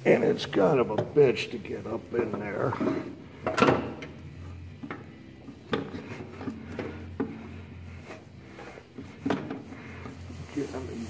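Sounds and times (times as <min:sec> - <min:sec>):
metal clunking and scraping: 0:00.2 - 0:10.3.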